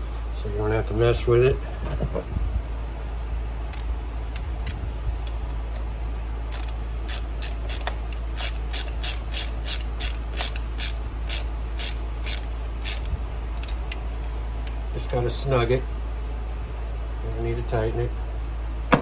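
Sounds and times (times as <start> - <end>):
ratchet wrench clicking: 6.5 - 13.8.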